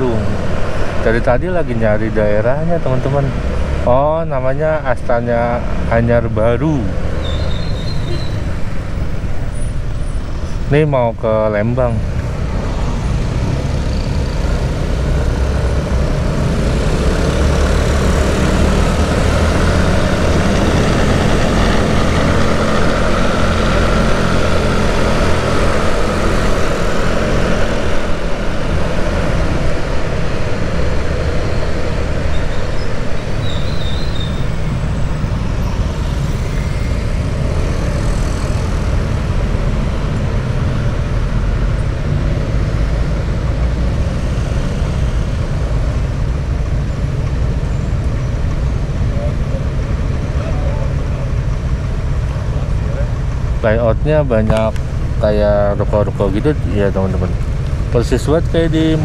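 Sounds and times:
road noise: 0:00.0 - 0:59.0
motorcycle engine: 0:12.3 - 0:59.0.

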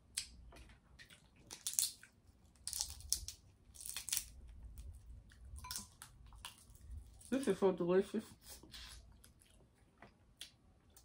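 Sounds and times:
crab meat tearing: 0:01.1 - 0:07.3
crab shell crackling: 0:01.4 - 0:07.4.

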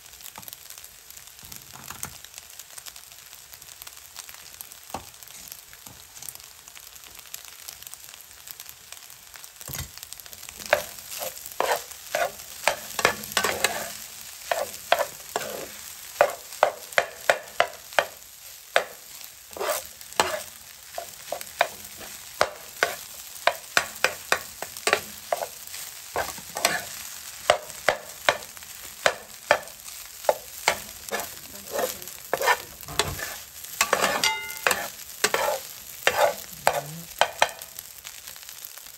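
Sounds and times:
rice sizzling in a skillet: 0:00.0 - 0:38.9
metal spatula scraping a pan: 0:10.6 - 0:37.8.

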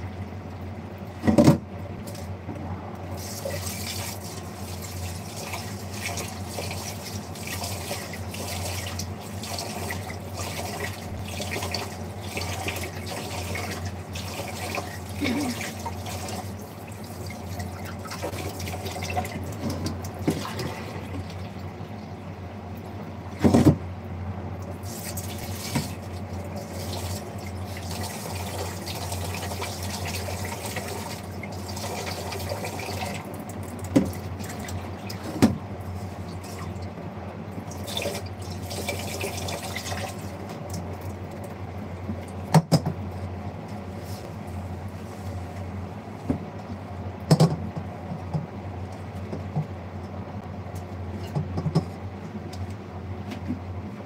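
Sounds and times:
steady low hum: 0:00.0 - 0:54.0
water running into sink: 0:03.1 - 0:21.7, 0:24.8 - 0:35.4, 0:37.7 - 0:41.0.

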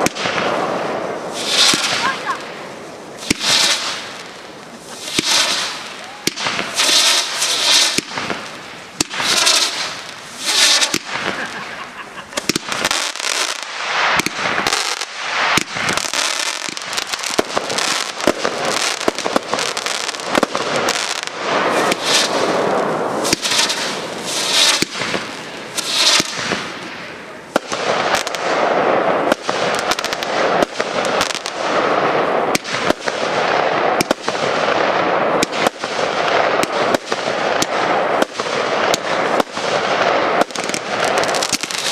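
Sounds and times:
fireworks bursting with sharp bangs: 0:00.0 - 0:41.9
steady hiss: 0:00.2 - 0:32.5.

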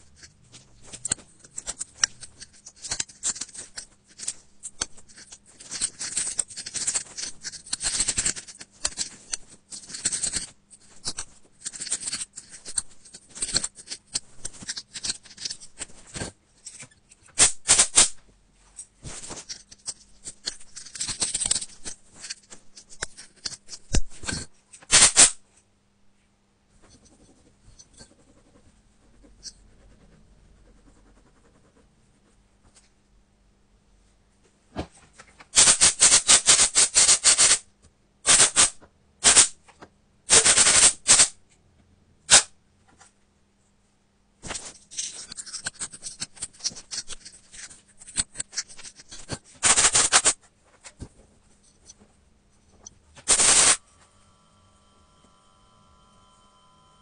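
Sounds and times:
metal pick scratching grille: 0:00.0 - 0:17.8, 0:53.2 - 0:53.8.

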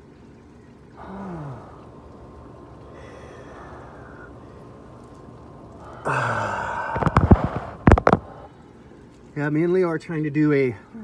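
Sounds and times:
man breathing heavily: 0:05.9 - 0:07.8
man groaning: 0:06.0 - 0:06.9.

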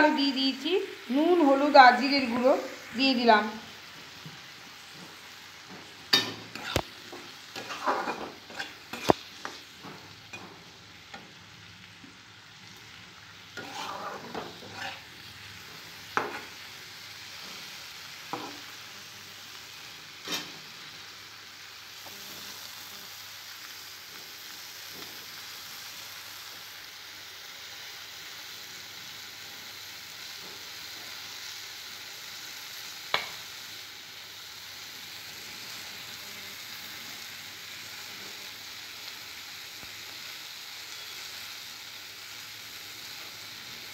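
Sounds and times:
vegetables frying in oil: 0:00.0 - 0:43.9
utensil scraping and knocking pan: 0:05.8 - 0:10.5, 0:13.6 - 0:15.0.

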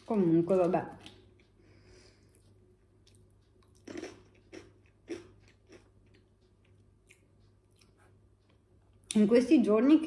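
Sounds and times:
chips crunching: 0:03.6 - 0:06.2.

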